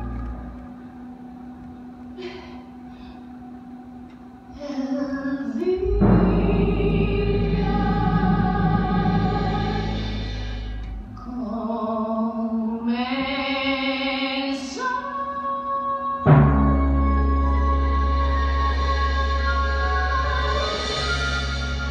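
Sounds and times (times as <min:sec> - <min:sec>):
orchestra sustained chords: 0:00.0 - 0:13.8, 0:14.6 - 0:21.9
voices singing: 0:04.6 - 0:16.4.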